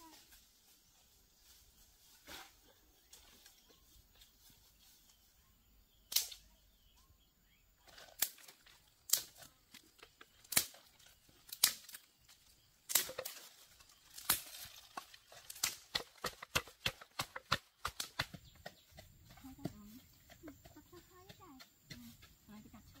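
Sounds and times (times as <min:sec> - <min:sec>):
wooden pestle pounding in mortar: 0:15.9 - 0:22.5.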